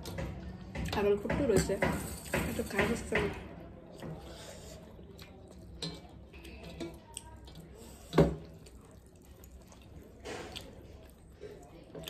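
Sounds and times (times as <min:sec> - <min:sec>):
wet squishing of eating by hand: 0:03.6 - 0:12.0.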